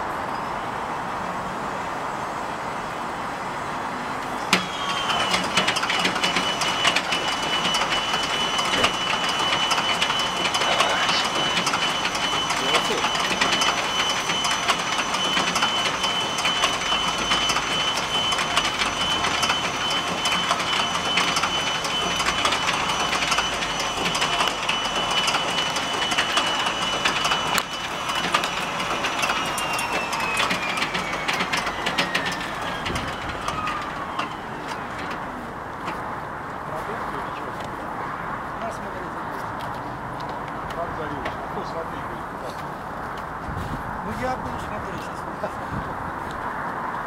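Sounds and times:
engine cranking clatter: 0:04.5 - 0:35.3
starter motor whine: 0:04.5 - 0:35.3.

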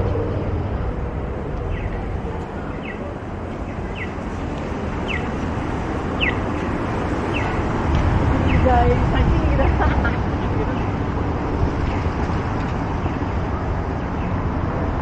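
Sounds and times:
city traffic rumble: 0:00.0 - 0:15.0
pedestrian crossing signal chirping: 0:01.6 - 0:11.0.

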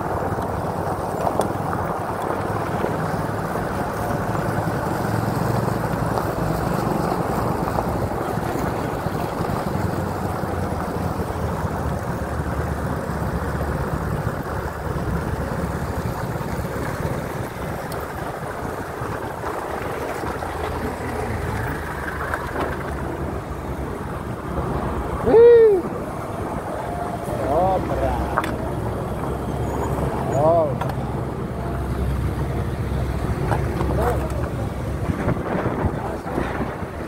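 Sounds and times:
car and motorcycle engines: 0:00.0 - 0:37.0
wind and road noise: 0:00.0 - 0:37.0.

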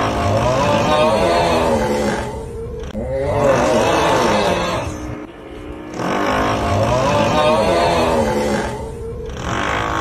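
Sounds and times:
person snoring loudly: 0:00.0 - 0:05.0, 0:05.9 - 0:10.0
drilling-like rumble: 0:00.0 - 0:10.0.

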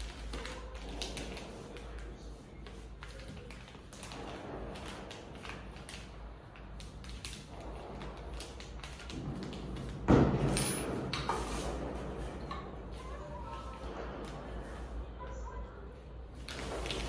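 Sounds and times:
plastic wrap rustling: 0:00.0 - 0:10.1, 0:16.3 - 0:17.0.

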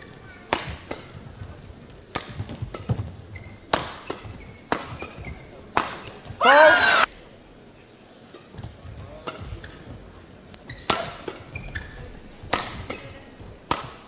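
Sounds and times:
shuttlecock struck by rackets: 0:00.5 - 0:01.2, 0:02.1 - 0:06.2, 0:10.8 - 0:11.5, 0:12.4 - 0:13.1, 0:13.7 - 0:14.0
shoe squeaks on court: 0:02.8 - 0:05.6, 0:10.6 - 0:12.1
player shouting: 0:06.4 - 0:07.1.

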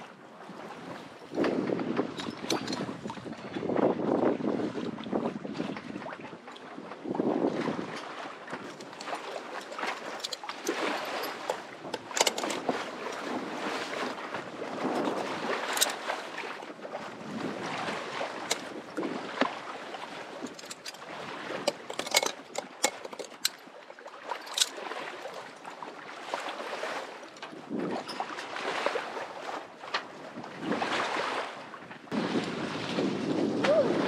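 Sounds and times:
water sloshing along hull: 0:00.0 - 0:34.0
sharp clicks and knocks: 0:09.7 - 0:12.6, 0:21.6 - 0:23.6.

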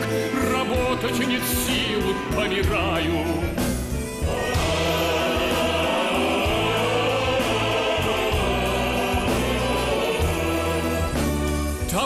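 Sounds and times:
music: 0:00.0 - 0:12.0
male choir singing: 0:04.2 - 0:12.0.

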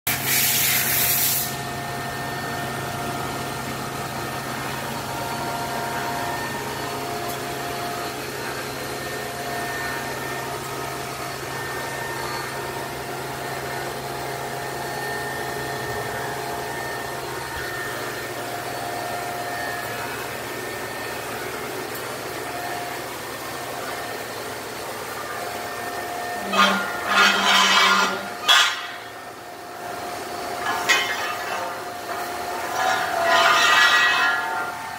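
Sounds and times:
surface grinder humming: 0:00.1 - 0:34.9.

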